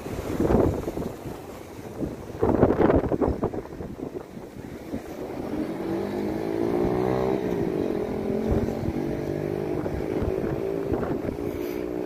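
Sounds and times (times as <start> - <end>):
vehicle engine revving: 4.8 - 12.0.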